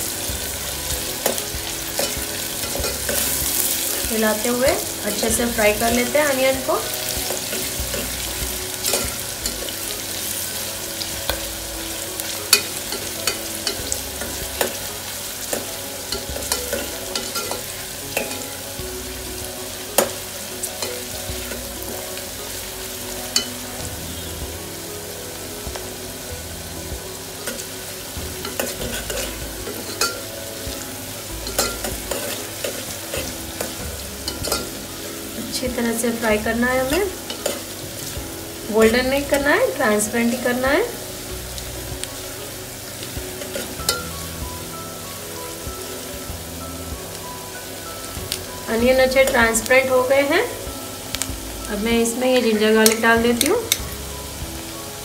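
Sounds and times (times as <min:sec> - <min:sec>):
onions sizzling in oil: 0:00.0 - 0:55.0
utensil tapping cooker: 0:15.5 - 0:18.5, 0:28.4 - 0:30.3, 0:31.4 - 0:34.8.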